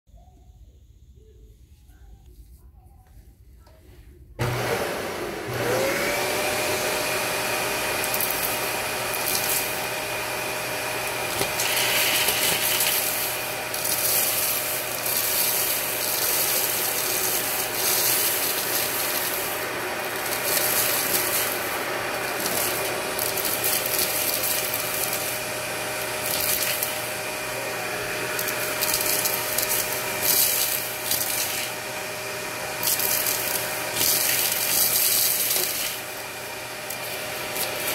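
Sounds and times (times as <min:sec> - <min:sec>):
vacuum cleaner motor whine: 0:04.4 - 0:37.9
debris rattling up vacuum wand: 0:07.2 - 0:27.3, 0:28.3 - 0:31.8, 0:32.7 - 0:37.9.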